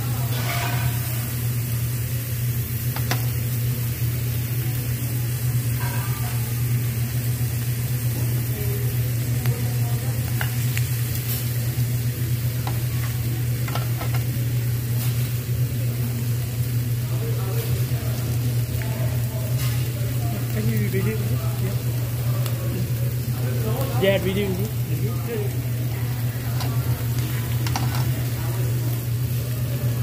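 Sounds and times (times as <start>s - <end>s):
meat sizzling on grill: 0.0s - 30.0s.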